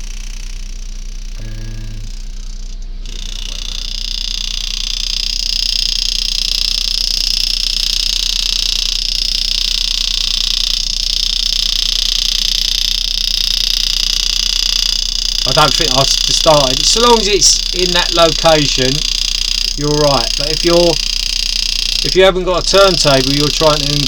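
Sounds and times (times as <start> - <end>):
low steady hum: 0.0 - 3.9, 15.4 - 24.0
engraving handpiece buzzing: 0.0 - 24.0.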